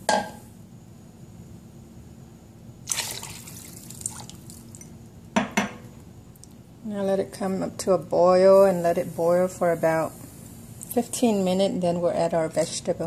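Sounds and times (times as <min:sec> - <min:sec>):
liquid pouring into a pot: 0:02.8 - 0:05.0.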